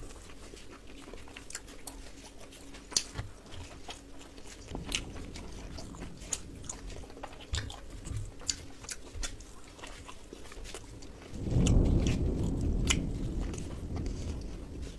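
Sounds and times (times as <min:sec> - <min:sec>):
chewing with wet mouth clicks: 0:00.0 - 0:14.9
low rumbling noise: 0:03.2 - 0:14.9.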